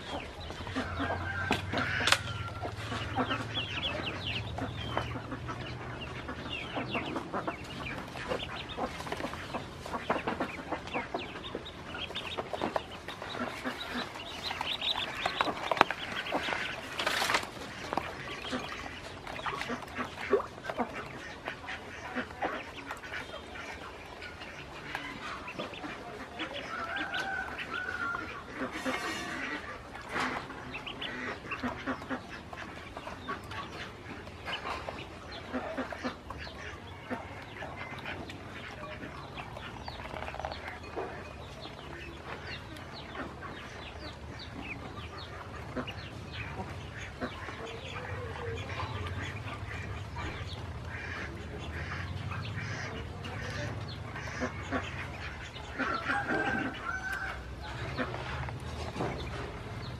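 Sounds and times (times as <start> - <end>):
bills pecking at plastic basin: 0.0 - 47.6
ducklings peeping: 0.0 - 59.9.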